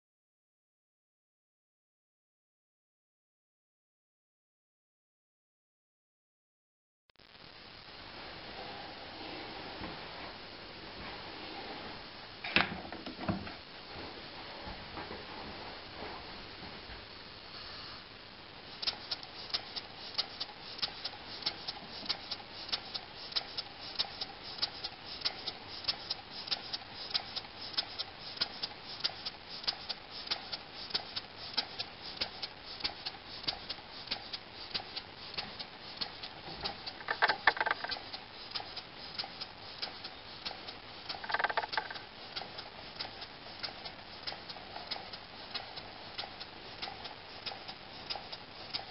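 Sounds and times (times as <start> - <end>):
model steam engine ticking: 18.8 - 48.9.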